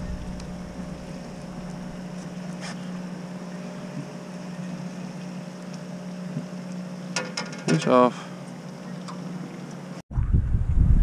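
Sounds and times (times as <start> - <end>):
boat engine idling: 0.0 - 7.2.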